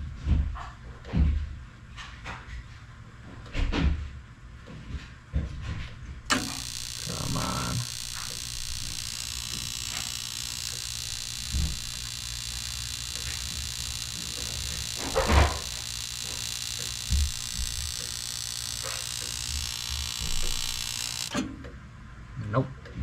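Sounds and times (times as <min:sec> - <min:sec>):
circulator pumps humming: 0:06.3 - 0:21.4.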